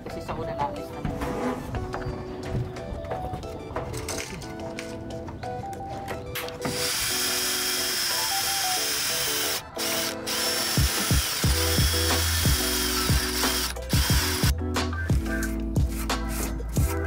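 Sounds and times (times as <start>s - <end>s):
background music: 0.0s - 17.0s
drill driving screw into steel: 6.6s - 14.5s.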